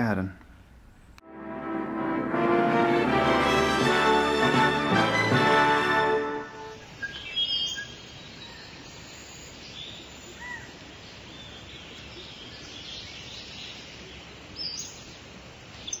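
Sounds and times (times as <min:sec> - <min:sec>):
outdoor ambient hiss: 0:00.0 - 0:16.0
birds chirping: 0:06.5 - 0:16.0.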